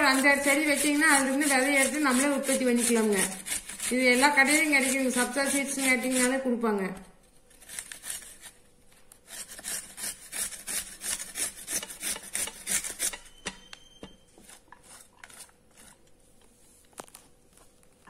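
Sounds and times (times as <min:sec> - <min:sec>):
carrot rasping on metal grater: 0:00.0 - 0:06.5, 0:07.5 - 0:08.6, 0:09.2 - 0:13.3.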